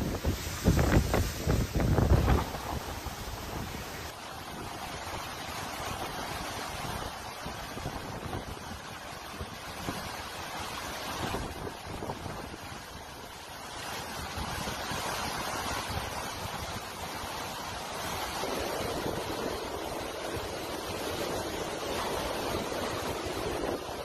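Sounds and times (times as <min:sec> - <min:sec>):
driving rain: 0:00.0 - 0:06.4
hurricane-force wind: 0:00.0 - 0:24.0
wind buffeting microphone: 0:00.0 - 0:24.0.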